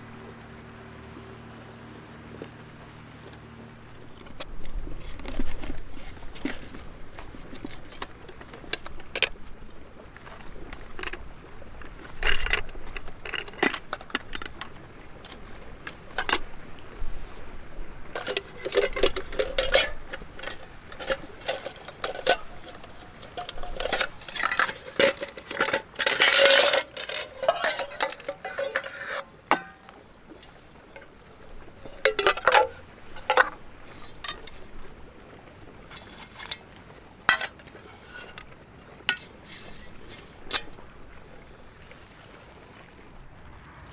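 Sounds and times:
metal pots clanking and clinking: 4.2 - 9.4, 11.8 - 15.5, 16.1 - 16.4, 18.1 - 34.9, 35.8 - 40.9.

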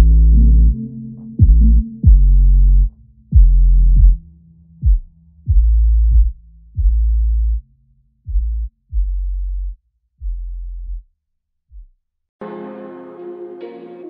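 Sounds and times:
electronic music with deep bass: 0.0 - 7.6.

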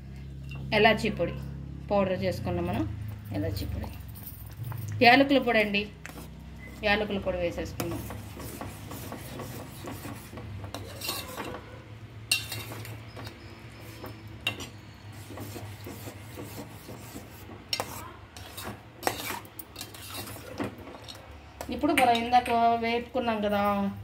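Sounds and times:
spoon scraping metal pot: 5.6 - 22.6
spoon clinking against pot: 10.7 - 11.6, 12.3 - 14.9, 21.8 - 22.7.

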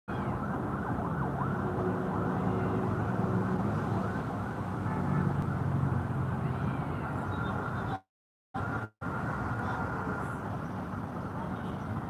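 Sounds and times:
siren wailing: 0.1 - 4.7
traffic hum: 0.1 - 12.0.

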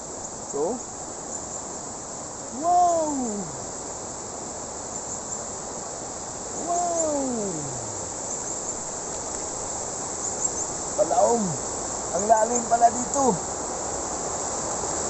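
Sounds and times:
insects chirping: 0.0 - 15.0
stream rushing over rocks: 0.0 - 15.0
man exclaiming: 2.5 - 3.7, 6.6 - 8.2, 11.0 - 11.6.

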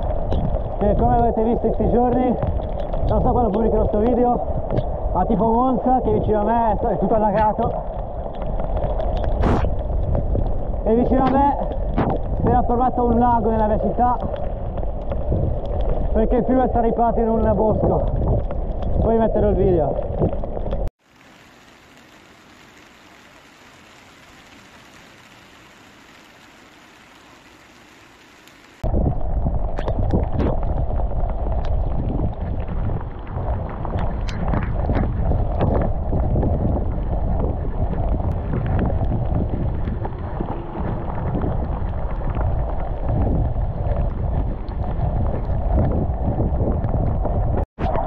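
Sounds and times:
wind buffeting microphone: 0.0 - 20.9, 28.8 - 48.0
raindrops ticking on camera: 0.0 - 47.6.

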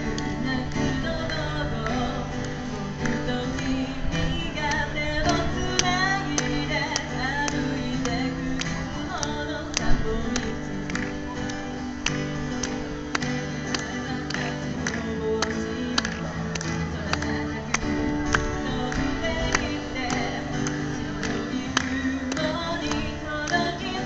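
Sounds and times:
woman singing: 0.0 - 11.5, 13.4 - 24.0
acoustic guitar strumming: 0.0 - 24.0.

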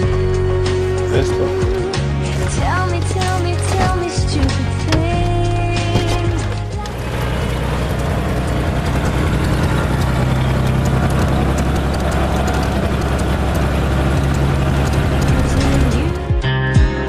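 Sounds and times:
light aircraft engine drone: 5.7 - 16.2.

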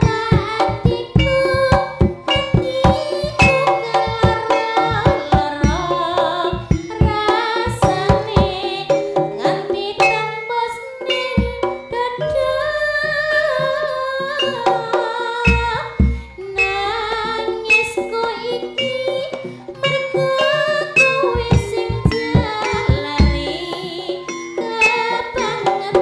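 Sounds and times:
quick dense drum strokes: 0.0 - 10.2
pitched gamelan notes: 0.0 - 26.0
wavering melody line: 0.0 - 26.0.

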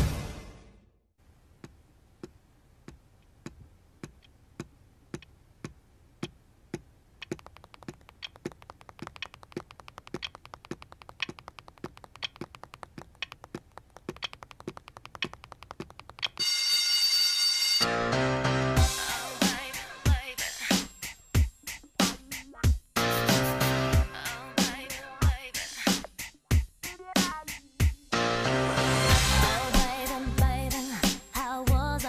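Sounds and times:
quiet evenly spaced clicks: 1.6 - 16.4
fast dense clicking: 7.2 - 16.4.

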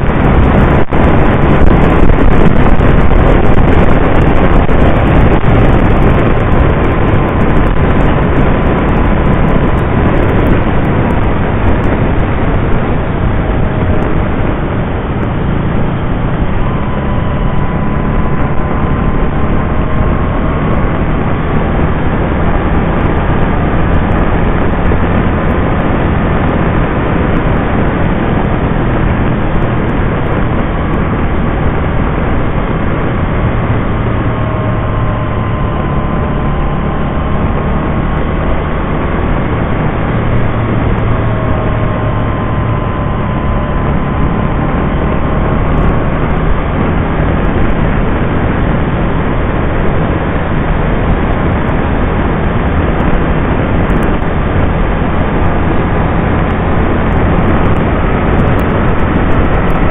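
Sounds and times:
engine hum: 0.0 - 59.9
faint whine: 0.0 - 59.9
wind and road rush: 0.0 - 59.9.

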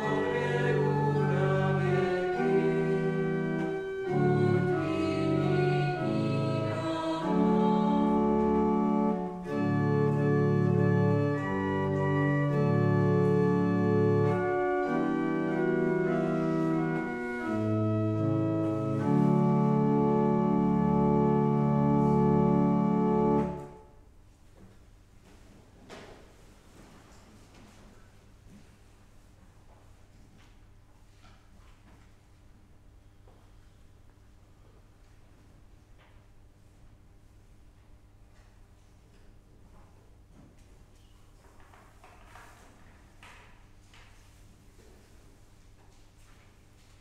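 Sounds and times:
pipe organ chords: 0.0 - 24.0.

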